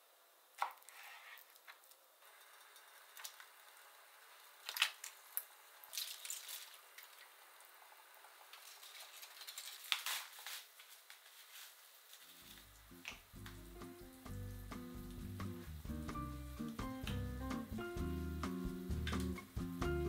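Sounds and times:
water running at sink: 0:04.4 - 0:09.6, 0:12.4 - 0:20.0
rustles: 0:08.6 - 0:13.6.

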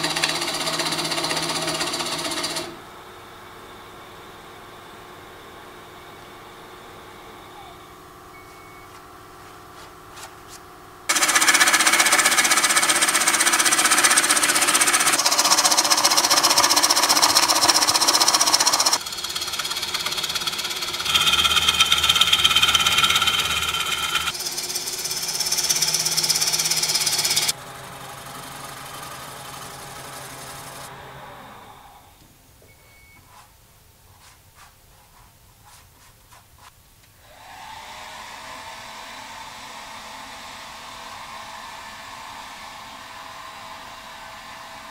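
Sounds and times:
wood lathe tool cutting bowl: 0:00.0 - 0:02.8, 0:11.1 - 0:30.9.

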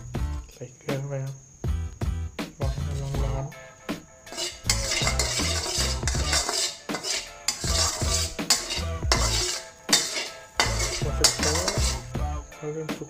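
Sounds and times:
background music with low beat: 0:01.6 - 0:06.8, 0:07.5 - 0:13.0
metal spatula scraping wok: 0:02.6 - 0:03.5, 0:04.2 - 0:12.2.

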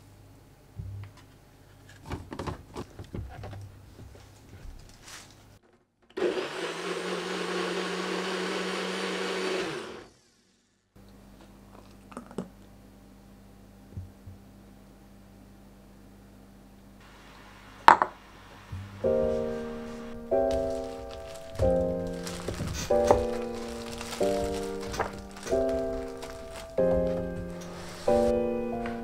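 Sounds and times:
blender motor running: 0:06.2 - 0:10.6.

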